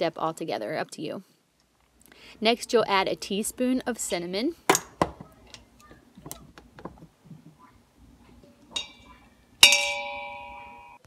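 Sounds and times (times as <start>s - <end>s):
spoon striking metal pot: 8.7s - 11.0s.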